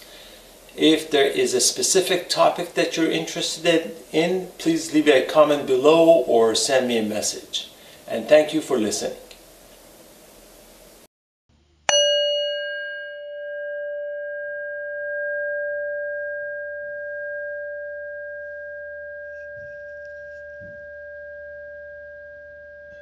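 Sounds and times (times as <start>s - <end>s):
struck bell ringing: 11.9s - 23.0s.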